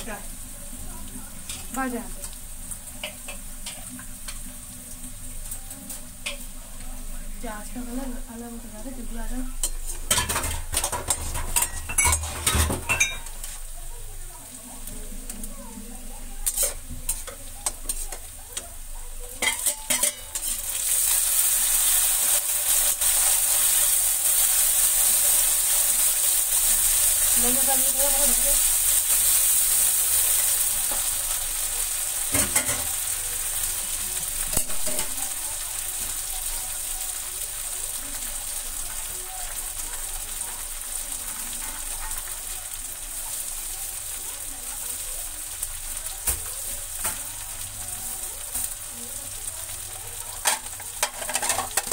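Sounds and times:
vegetables sizzling in oil: 0:00.0 - 0:51.9
metal spatula scraping pan: 0:09.6 - 0:13.6, 0:16.4 - 0:18.3.

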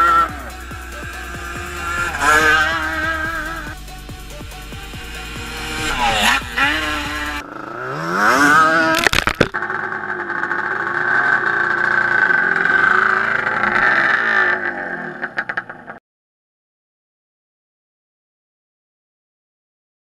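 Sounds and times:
sharp exhaust cracks: 0:00.0 - 0:07.5
two-stroke engine revving: 0:00.0 - 0:16.0.

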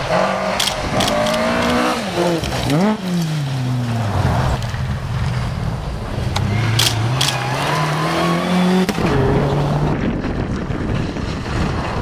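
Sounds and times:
rally car engine accelerating: 0:06.4 - 0:12.0.

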